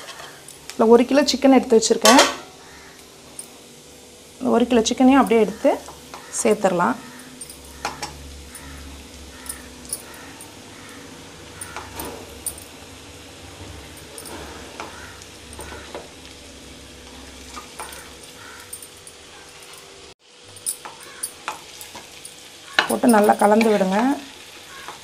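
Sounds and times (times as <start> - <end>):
oil sizzling in a wok: 0.0 - 25.0.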